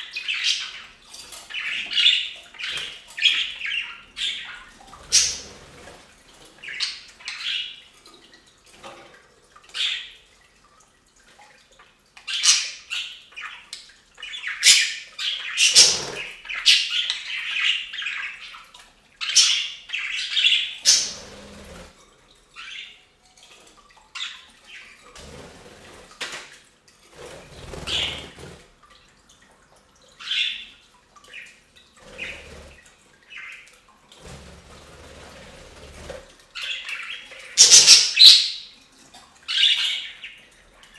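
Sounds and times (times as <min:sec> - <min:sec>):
budgies chirping and squawking: 0:00.0 - 0:06.0, 0:06.6 - 0:07.9, 0:12.3 - 0:18.6, 0:19.2 - 0:21.9, 0:27.5 - 0:28.5, 0:30.2 - 0:30.7, 0:31.3 - 0:33.7, 0:35.8 - 0:38.6.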